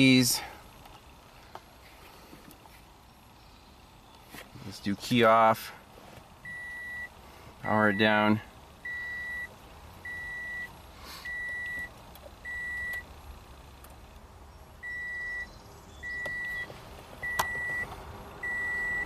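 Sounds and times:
car warning chime beeping: 6.4s - 13.1s, 14.8s - 19.0s.

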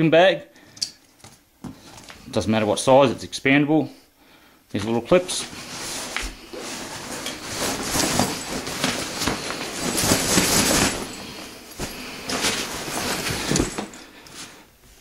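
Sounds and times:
backpack fabric rustling: 5.2s - 15.0s.

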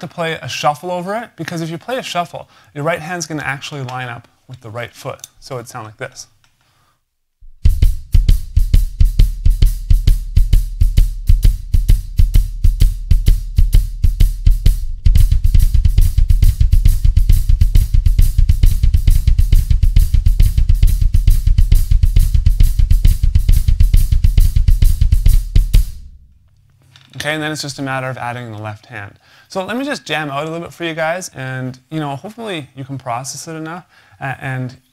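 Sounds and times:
drum kit shuffle: 7.4s - 26.3s
double bass drum pedals: 7.4s - 26.6s.

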